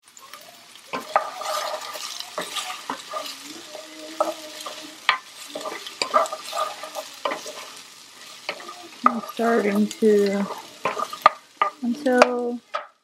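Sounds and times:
onion sizzling in oil: 0.0 - 13.0
wooden spoon scraping pan: 0.9 - 13.0
spoon knocking against pan: 10.5 - 13.0.

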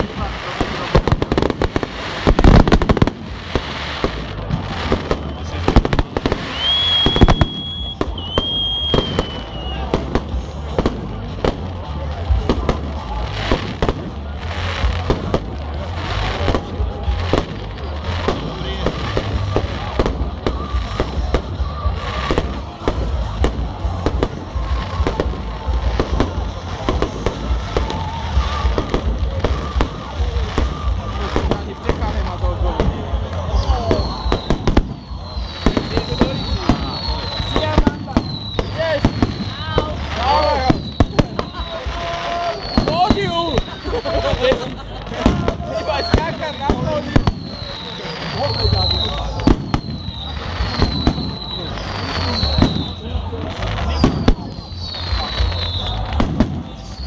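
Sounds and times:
fireworks bursting: 0.0 - 57.0
high whistle: 6.4 - 9.9, 32.9 - 44.1, 45.9 - 57.0.

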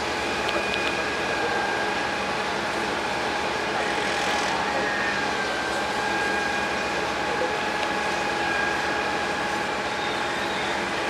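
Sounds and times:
construction machinery drone: 0.0 - 11.0
high whine: 0.0 - 11.0.

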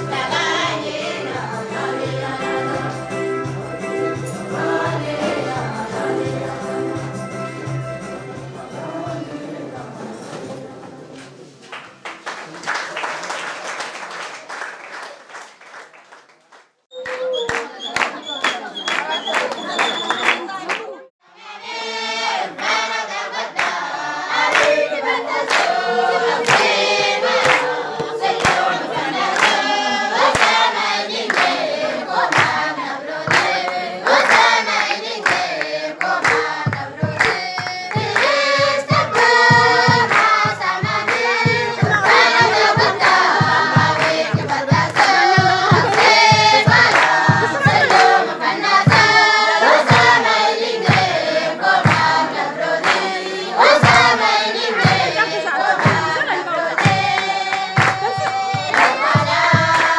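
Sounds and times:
mixed choir singing: 0.0 - 11.6, 17.8 - 59.9.

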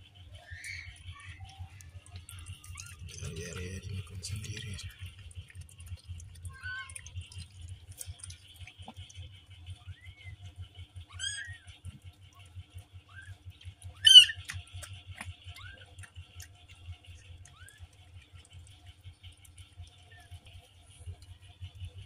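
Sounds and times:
kitten squealing loudly: 14.0 - 14.4.

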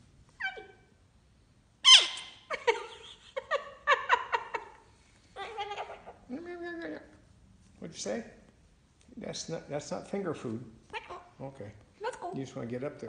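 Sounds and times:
cockatoo squawking and chattering: 1.8 - 2.5.

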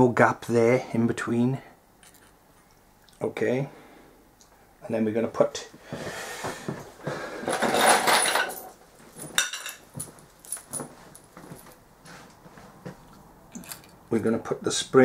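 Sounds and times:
metal parts clinking and rattling: 7.5 - 11.3.

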